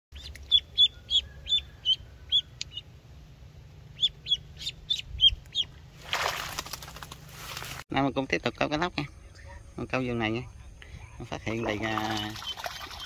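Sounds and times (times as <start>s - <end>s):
duckling peeping: 0.2s - 2.9s, 3.8s - 5.8s.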